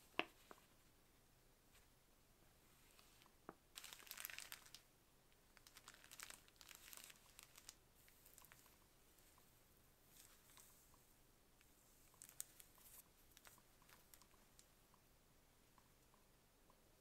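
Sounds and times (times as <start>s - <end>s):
packaging crinkling: 3.8s - 4.8s, 5.6s - 8.7s, 12.2s - 14.3s.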